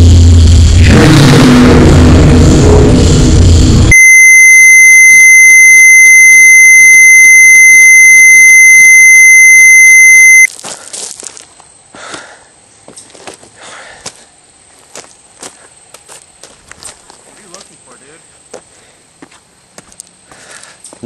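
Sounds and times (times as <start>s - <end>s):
harsh static: 3.8s - 10.5s
high-pitched electronic beep: 3.9s - 10.5s.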